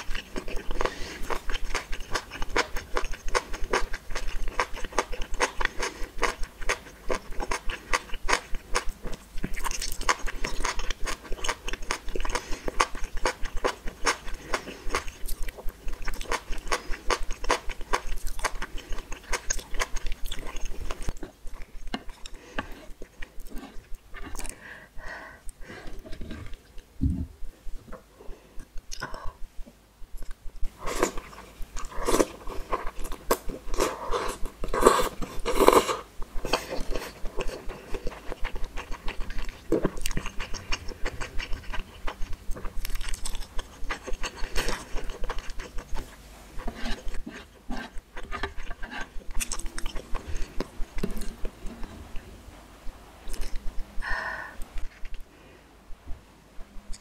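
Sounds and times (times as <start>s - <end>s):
wet chewing: 0.0s - 24.6s, 30.2s - 52.0s
lip smacks and mouth clicks: 53.3s - 53.7s.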